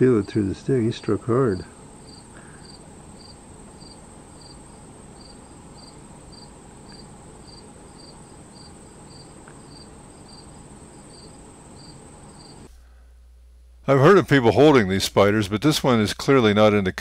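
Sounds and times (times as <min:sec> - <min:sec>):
lower insect chirp: 0:00.0 - 0:12.7
high-pitched insect trill: 0:01.8 - 0:12.7.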